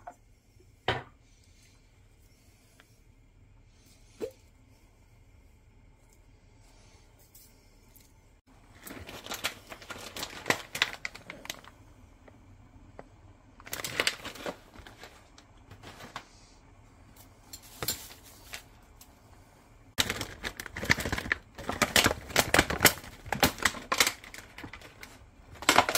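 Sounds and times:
plastic packaging crinkling: 8.6 - 12.4, 13.0 - 16.3, 20.0 - 25.9.

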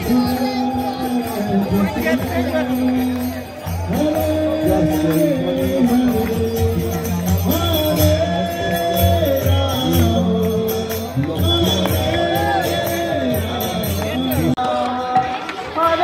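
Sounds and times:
group singing: 7.5 - 16.0.

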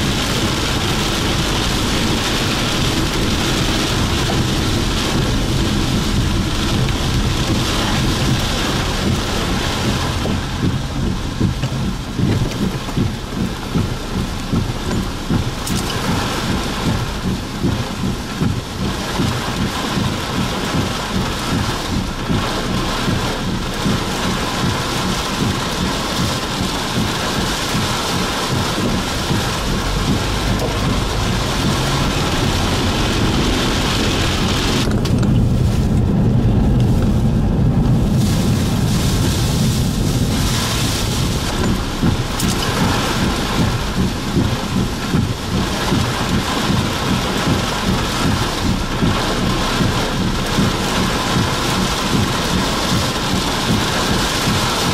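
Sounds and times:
deep low thunder rumble: 0.0 - 54.9
heavy rain on car roof: 0.0 - 54.9.

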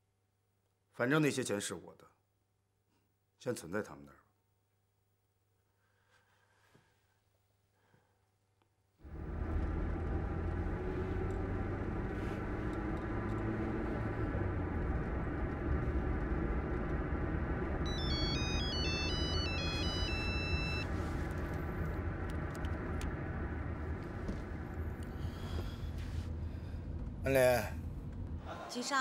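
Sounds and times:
road rumble inside moving car: 9.1 - 28.5
mobile phone ringtone: 17.9 - 20.9.

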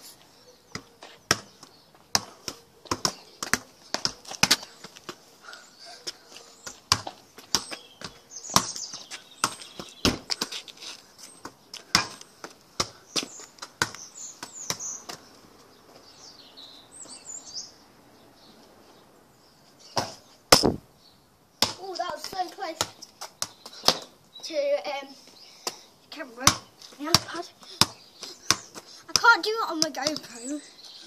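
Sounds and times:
birds chirping: 0.0 - 31.0
football kicks and bounces: 0.7 - 4.7, 6.7 - 10.6, 11.4 - 12.2, 13.7 - 15.2, 20.0 - 20.8, 26.4 - 30.3.

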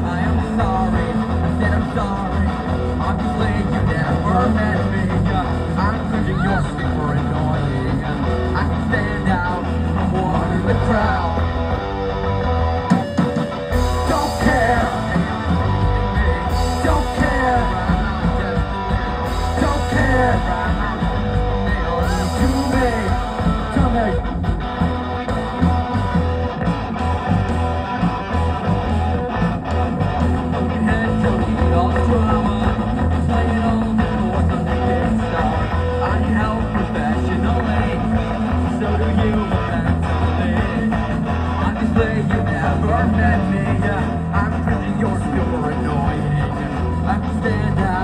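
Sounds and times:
person singing: 0.0 - 11.8, 12.9 - 24.6, 30.4 - 48.0
drum kit: 0.0 - 48.0
electric bass: 0.0 - 48.0
electric guitar: 0.0 - 48.0.

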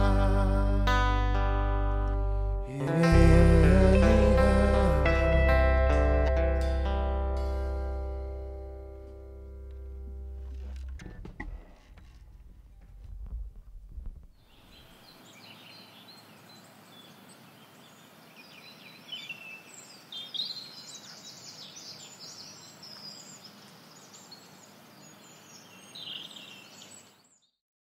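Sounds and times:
music: 0.0 - 11.2
birds chirping and singing: 14.4 - 27.4.

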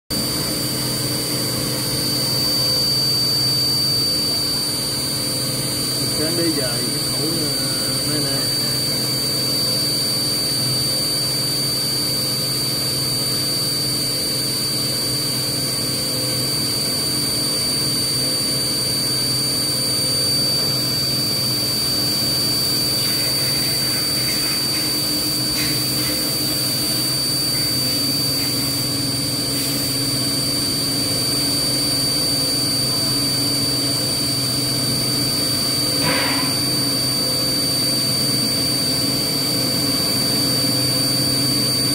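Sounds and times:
milling machine cutting metal: 20.2 - 30.0.

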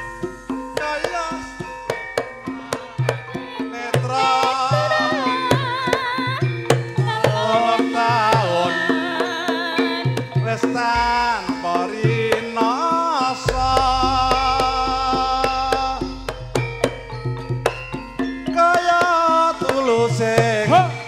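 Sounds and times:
ringing metallophone notes: 0.0 - 21.0
wavering melody with vibrato: 0.0 - 21.0
hand drum strokes: 10.2 - 21.0.

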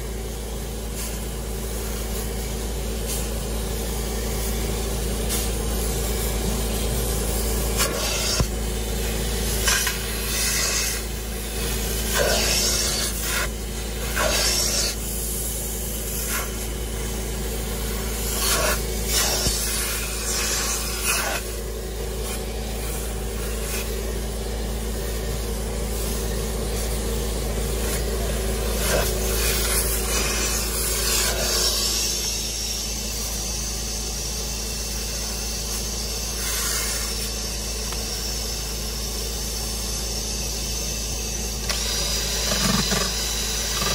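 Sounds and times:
vacuum motor running: 0.0 - 43.9
nozzle suction rasping on fabric: 7.7 - 8.6, 9.5 - 15.4, 16.0 - 16.7, 17.9 - 21.6, 22.2 - 24.0, 27.8 - 32.7, 35.6 - 38.0, 41.6 - 43.9.

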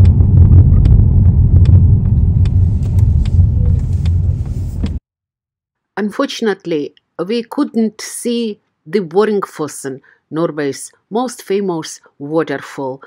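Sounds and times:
tyre and road rumble in car: 0.0 - 5.0.

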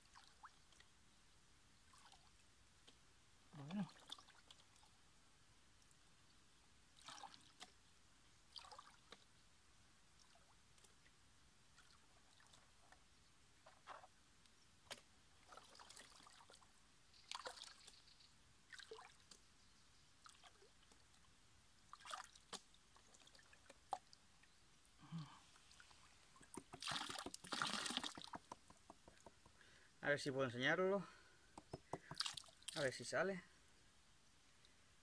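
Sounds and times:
water sloshing and trickling: 0.0 - 1.0, 1.8 - 3.0, 3.6 - 5.0, 6.9 - 9.5, 10.1 - 24.9, 25.5 - 29.3, 32.0 - 33.0.

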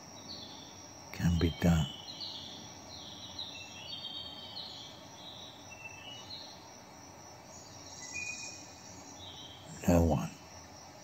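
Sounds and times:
low steady hiss: 0.0 - 11.0.

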